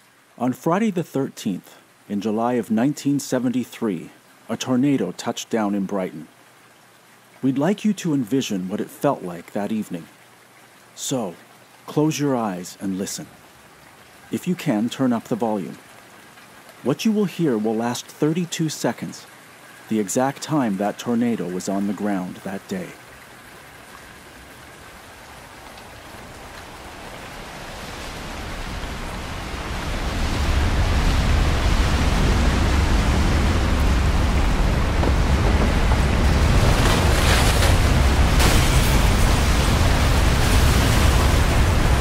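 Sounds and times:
hissing wind gusts: 0:23.0 - 0:42.0
rushing wind: 0:25.9 - 0:42.0
deep rumble: 0:30.5 - 0:42.0.

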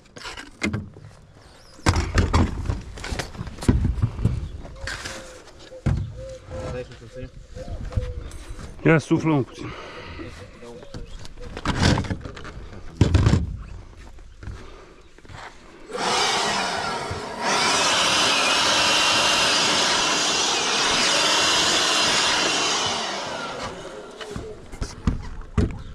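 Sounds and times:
leaf blower whining: 0:15.9 - 0:25.0.

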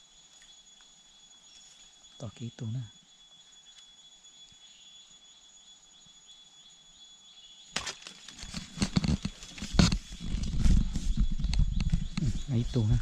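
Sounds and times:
twigs crackling and snapping: 0:07.8 - 0:10.5.

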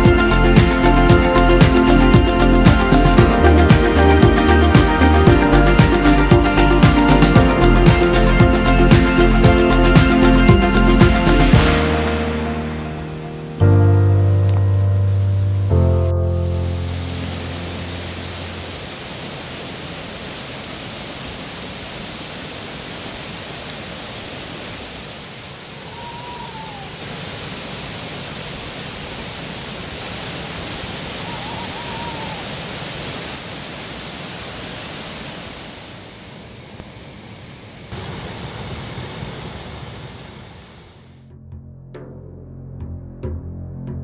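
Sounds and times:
flowing water rushing: 0:00.0 - 0:13.6, 0:14.8 - 0:41.2
whistle-like call: 0:25.9 - 0:27.0, 0:31.2 - 0:32.5.

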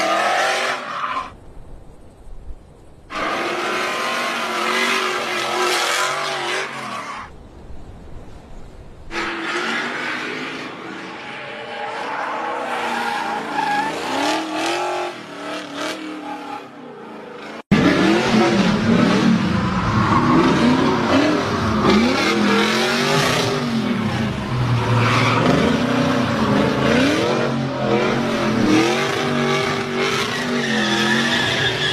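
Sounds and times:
car engine revving hard: 0:17.7 - 0:19.7, 0:20.3 - 0:31.3
tyres squealing: 0:19.6 - 0:31.9.

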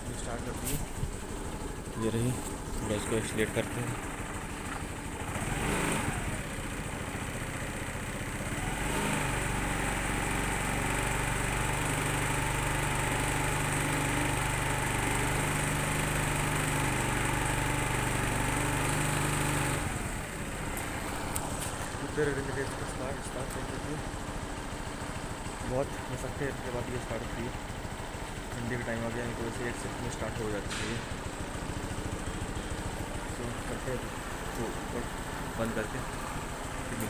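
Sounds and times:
scooter engine idling: 0:00.0 - 0:37.0.

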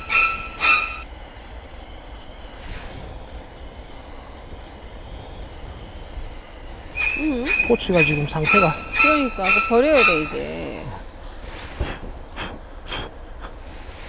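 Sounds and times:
gas torch squealing: 0:00.0 - 0:10.9
gas torch hissing: 0:00.0 - 0:14.0.

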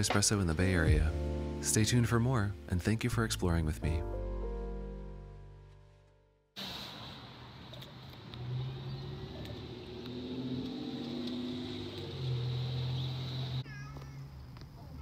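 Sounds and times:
car engines running: 0:07.4 - 0:14.8.

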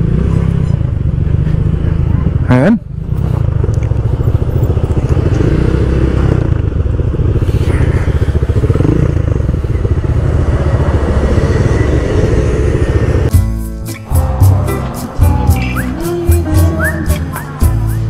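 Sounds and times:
scooter engines idling: 0:00.0 - 0:13.4.

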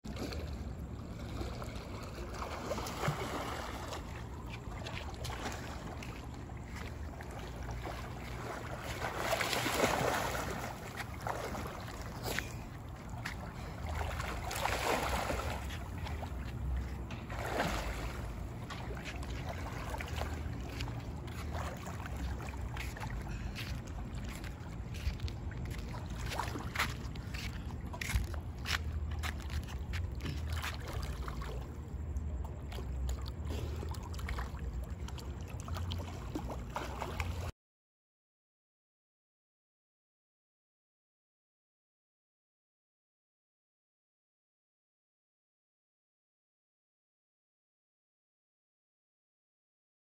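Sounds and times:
pool water splashing: 0:00.1 - 0:37.5
steady low rumble: 0:03.2 - 0:37.5.

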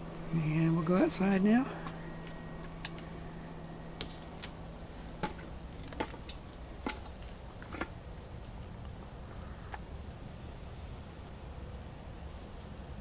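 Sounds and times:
low hum: 0:00.0 - 0:13.0
water dripping from trees: 0:09.8 - 0:13.0.

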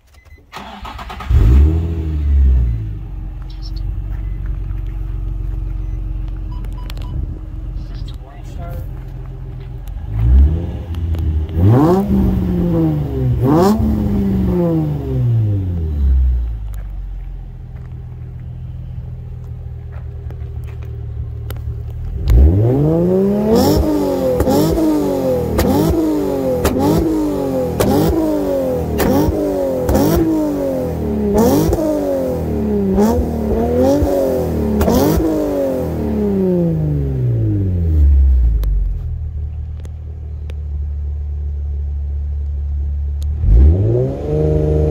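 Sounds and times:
car engine idling: 0:00.4 - 0:44.0
car engine revving: 0:00.6 - 0:39.0, 0:43.1 - 0:44.9.

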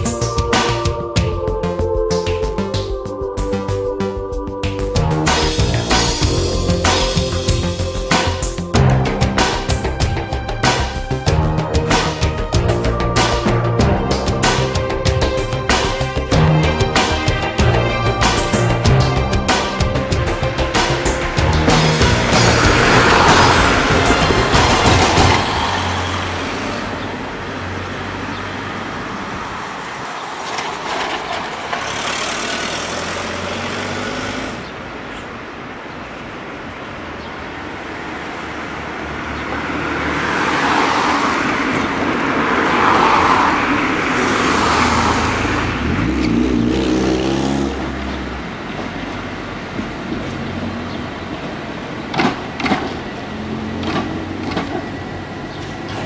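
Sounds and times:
tram wheel and motor noise: 0:11.9 - 0:56.0.

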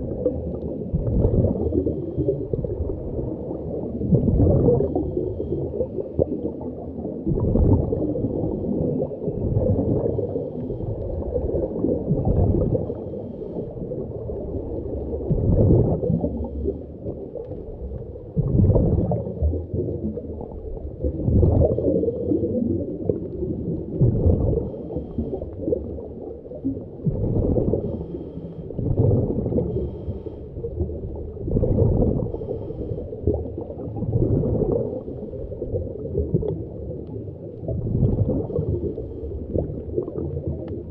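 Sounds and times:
gurgling bubble surges: 0:00.0 - 0:40.9
diver breathing underwater: 0:09.9 - 0:17.7, 0:21.3 - 0:23.3, 0:24.0 - 0:26.3, 0:27.1 - 0:36.2, 0:38.0 - 0:40.2.

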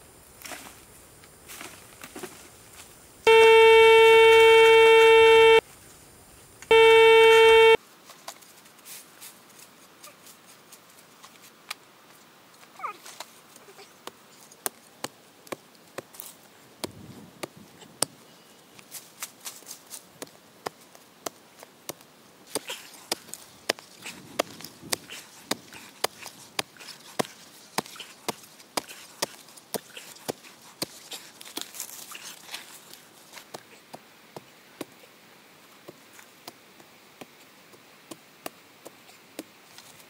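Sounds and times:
metal detector beeping: 0:03.3 - 0:05.6, 0:06.7 - 0:07.8.

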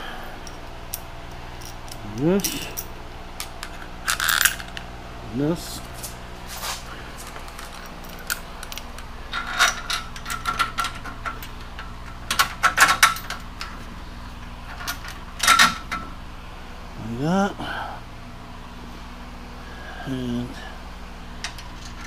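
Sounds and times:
fan humming: 0:00.0 - 0:22.0
metal hardware clinking: 0:00.4 - 0:04.8, 0:07.2 - 0:13.8.

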